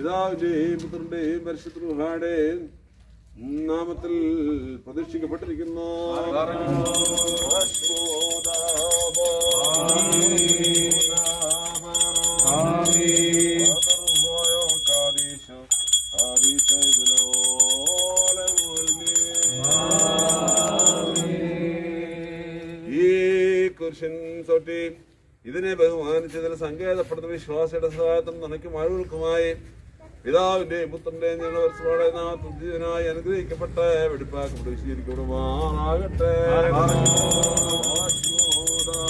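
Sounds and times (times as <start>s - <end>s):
men chanting a hymn: 5.5s - 15.5s, 16.2s - 23.7s, 33.2s - 39.0s
small metal bells jingling: 6.7s - 21.4s, 36.8s - 39.0s.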